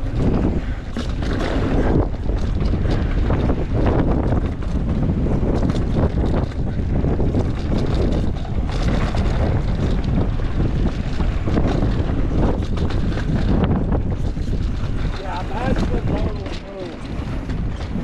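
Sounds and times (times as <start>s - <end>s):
bike clicks and rattles: 0.0s - 18.0s
bike tyre rumble: 0.0s - 18.0s
wind buffeting microphone: 0.0s - 18.0s.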